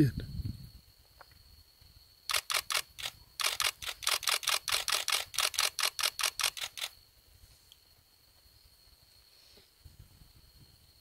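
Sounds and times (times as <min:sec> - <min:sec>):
camera shutter bursts: 0:02.3 - 0:06.9.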